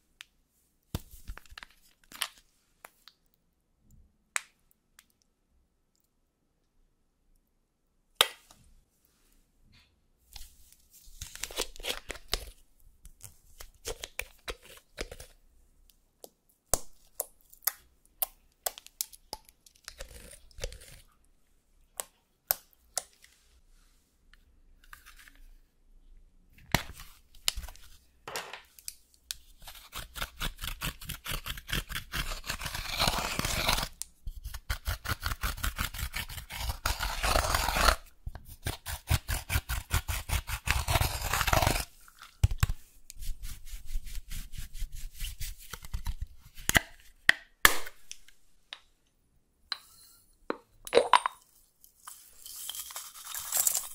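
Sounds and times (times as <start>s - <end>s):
powder crunching and scratching: 29.6s - 42.8s, 52.0s - 53.9s.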